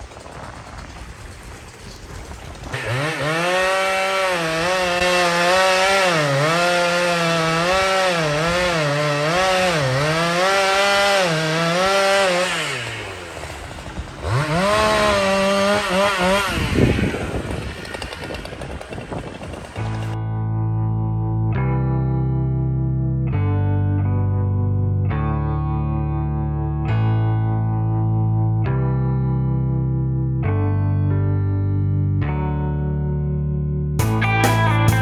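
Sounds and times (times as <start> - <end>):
chainsaw cutting wood: 0.1 - 20.2.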